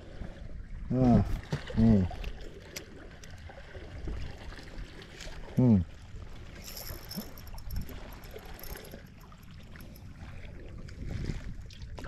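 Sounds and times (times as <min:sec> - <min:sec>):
water lapping against a hull: 0:00.0 - 0:12.0
wind rumble on microphone: 0:03.2 - 0:12.0.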